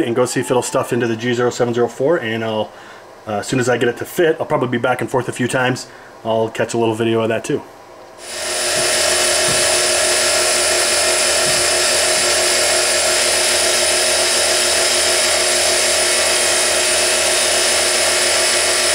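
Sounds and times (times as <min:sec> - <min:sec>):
mill spindle whine: 0:08.1 - 0:18.9.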